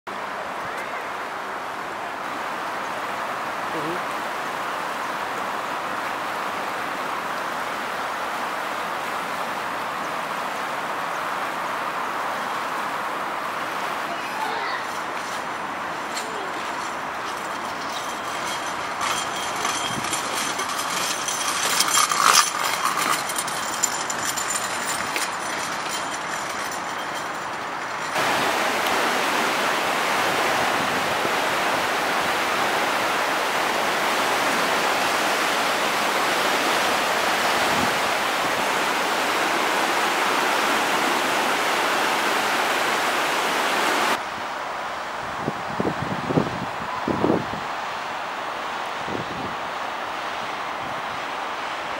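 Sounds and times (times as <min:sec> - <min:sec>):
river rushing water: 0:00.1 - 0:51.9
brief clatters: 0:14.7 - 0:28.2.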